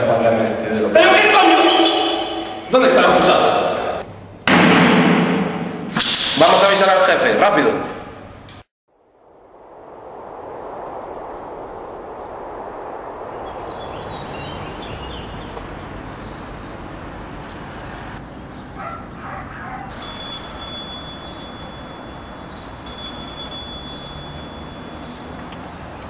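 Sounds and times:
outdoor background hiss: 5.8s - 26.0s
payphone ringing: 20.0s - 25.0s.

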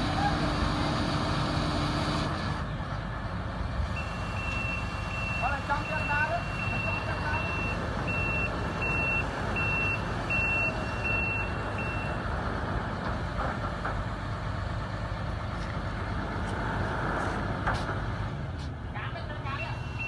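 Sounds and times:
crane warning beeper: 4.0s - 12.2s.

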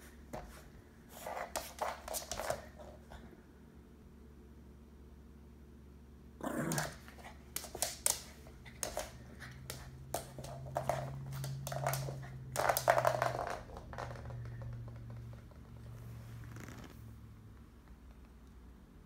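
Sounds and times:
paws scrabbling on wooden floor: 0.2s - 3.3s, 6.6s - 16.9s
dog growling playfully: 6.4s - 7.4s.

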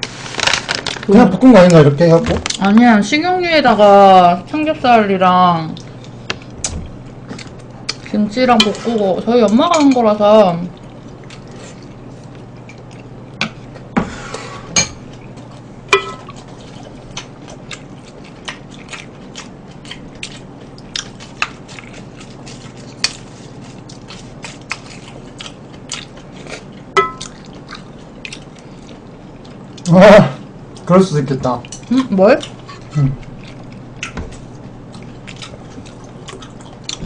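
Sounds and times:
chewing: 5.7s - 10.0s, 10.6s - 13.9s, 15.1s - 30.9s, 31.6s - 37.0s
utensils tapping ceramic bowls: 15.9s - 16.4s, 27.0s - 27.3s.

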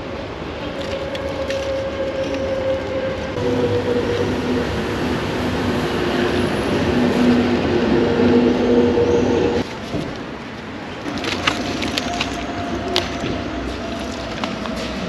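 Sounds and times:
vehicle engine humming: 0.0s - 9.8s.

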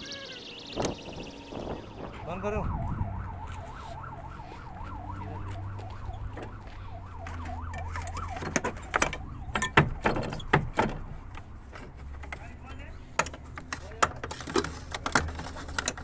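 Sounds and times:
low hum: 0.0s - 8.2s
warbling siren-like tone: 0.0s - 10.1s
sharp knocks and clanks: 7.2s - 12.6s.

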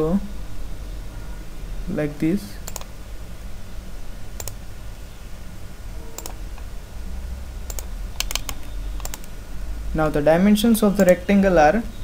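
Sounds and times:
steady low hum: 0.0s - 12.0s
computer mouse clicking: 2.6s - 2.9s, 4.4s - 4.6s, 6.2s - 6.7s, 7.6s - 9.4s, 11.0s - 11.2s.

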